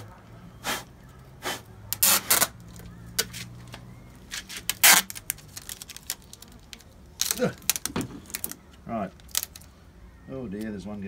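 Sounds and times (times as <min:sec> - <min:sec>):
adhesive tape tearing off roll: 0:01.4 - 0:08.6.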